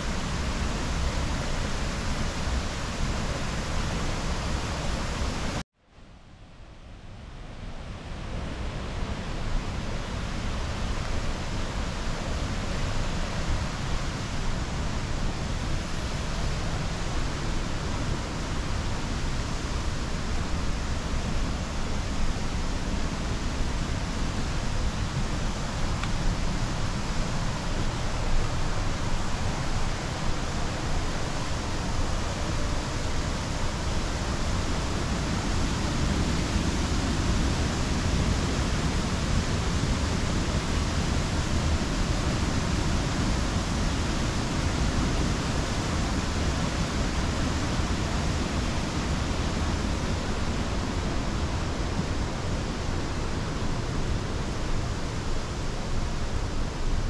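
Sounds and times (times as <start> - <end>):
waterfall rushing: 8.9 - 57.0.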